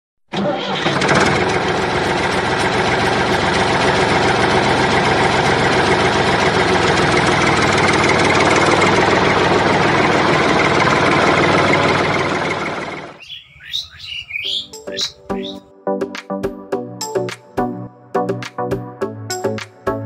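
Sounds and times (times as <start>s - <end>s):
tractor engine idling: 0.3s - 15.5s.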